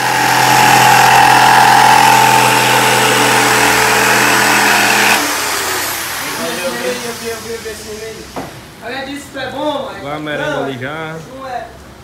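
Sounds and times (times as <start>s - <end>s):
electric jigsaw sawing plywood: 0.0s - 7.3s.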